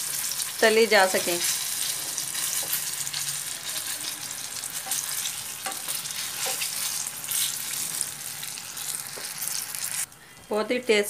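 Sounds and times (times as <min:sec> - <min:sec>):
chillies deep-frying in oil: 0:00.0 - 0:11.0
steel spoon knocking pan: 0:04.8 - 0:06.9.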